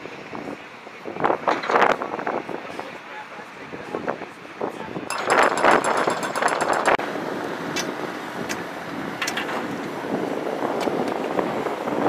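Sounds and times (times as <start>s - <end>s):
wind noise on microphone: 0.0s - 12.0s
tools clinking on concrete: 5.1s - 7.0s.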